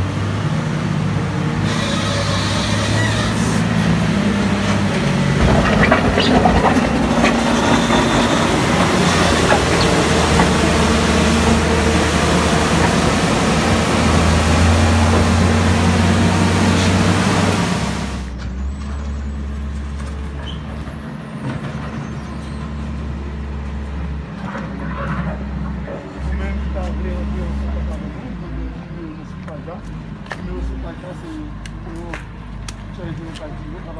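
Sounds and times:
vehicle engine running: 3.5s - 18.3s.

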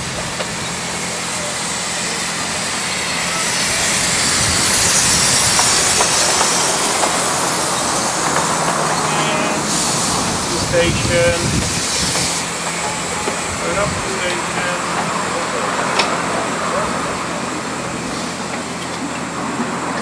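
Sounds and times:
carriages rolling on track: 0.0s - 20.0s
steam locomotive hissing: 0.0s - 20.0s.

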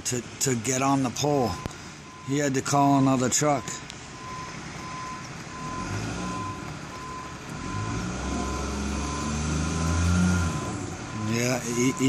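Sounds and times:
truck reverse alarm beeping: 0.5s - 12.0s
truck engine revving: 3.0s - 12.0s.

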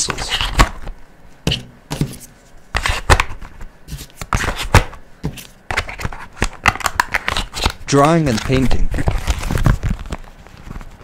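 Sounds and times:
plastic pouch rustling: 6.5s - 11.0s.

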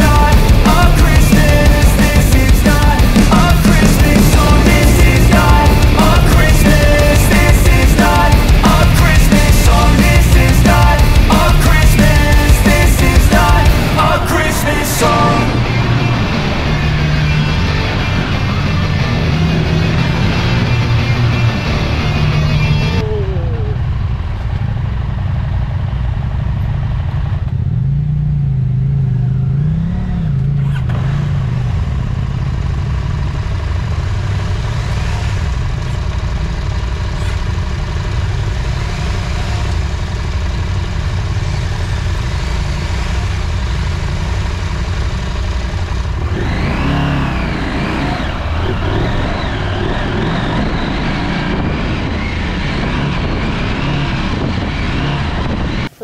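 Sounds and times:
steady rushing noise: 0.0s - 23.0s, 43.6s - 56.0s
motorcycle engine revving: 0.0s - 56.0s.

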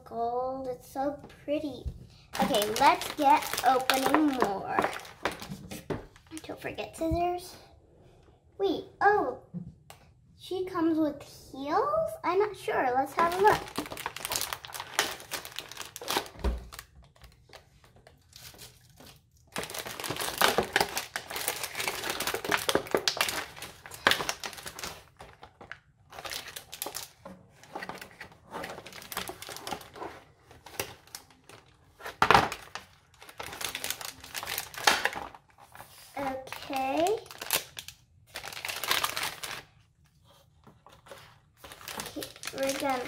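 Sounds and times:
packaging crinkling and rustling: 2.3s - 7.0s, 13.1s - 43.0s.

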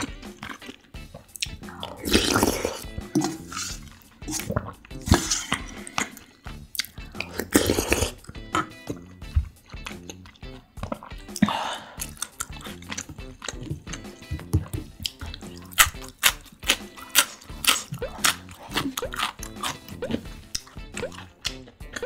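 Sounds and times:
noodle slurp: 0.0s - 9.1s, 15.1s - 22.0s
background music: 0.0s - 22.0s
wet chewing and smacking: 0.0s - 22.0s.

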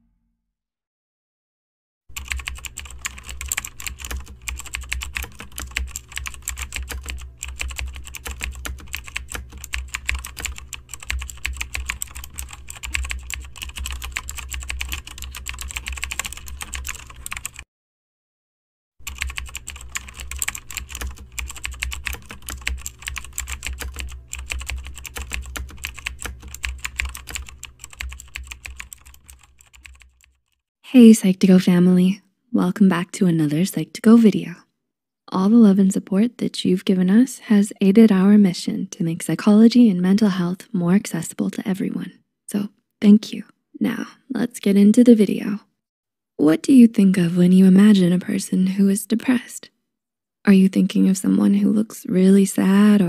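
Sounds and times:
computer keyboard typing: 2.2s - 17.6s, 19.0s - 30.5s.

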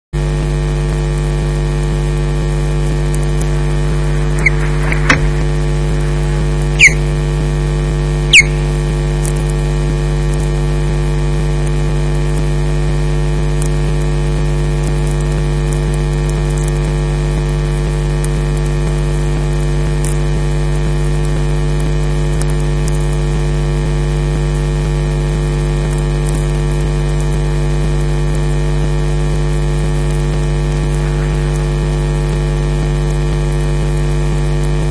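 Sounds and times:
electrical mains hum: 0.2s - 34.9s
short sharp high sounds: 4.0s - 7.1s, 8.3s - 8.7s.

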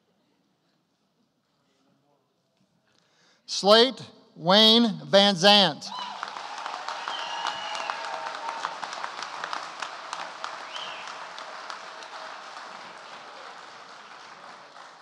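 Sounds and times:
audience applauding: 5.9s - 15.0s.

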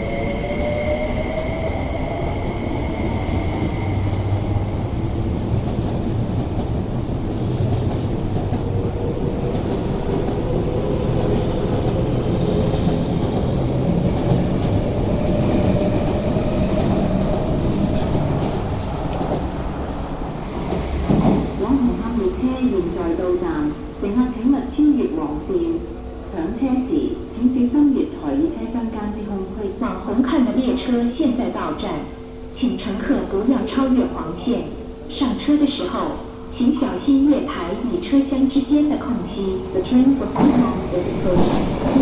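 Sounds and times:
train wheels rumbling on rail: 0.0s - 25.4s, 38.4s - 42.0s.

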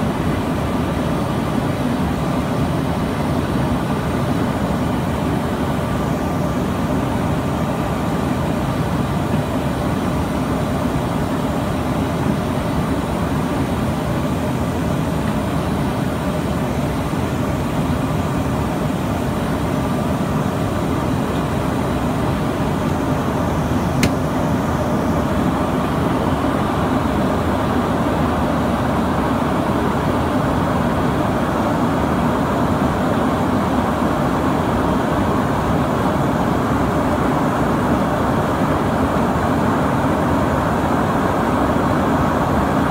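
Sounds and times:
jet engine drone: 0.0s - 42.9s
brief click: 24.0s - 24.2s.

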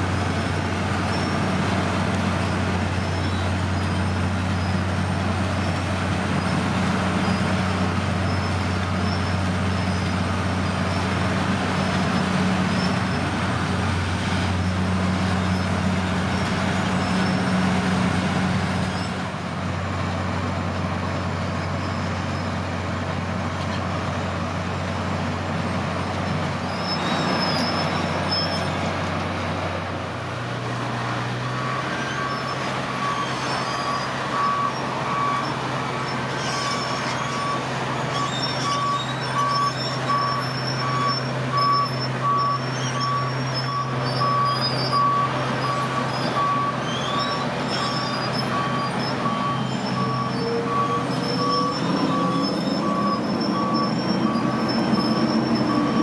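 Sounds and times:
road milling machine diesel drone: 0.0s - 56.0s
reversing alarm beeping: 31.4s - 35.6s, 36.6s - 56.0s.

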